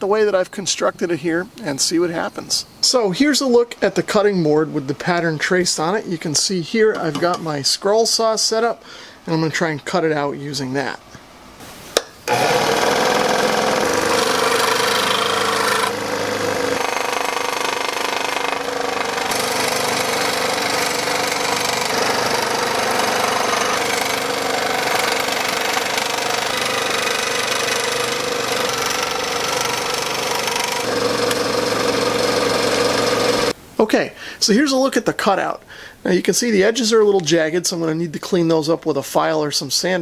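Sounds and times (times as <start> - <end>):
scroll saw cutting plastic: 12.3 - 33.5.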